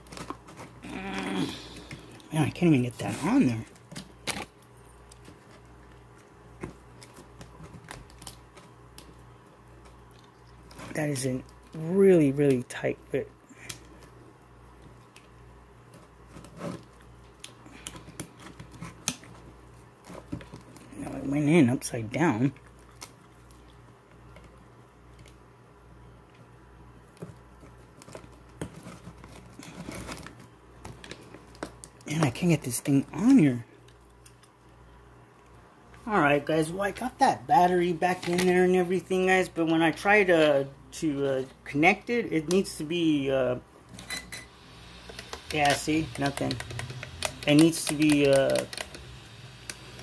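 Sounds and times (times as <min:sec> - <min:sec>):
faint steady hum: 0:00.0 - 0:50.0
hands rubbing plastic: 0:44.5 - 0:50.0
clicks of plastic parts: 0:45.1 - 0:50.0.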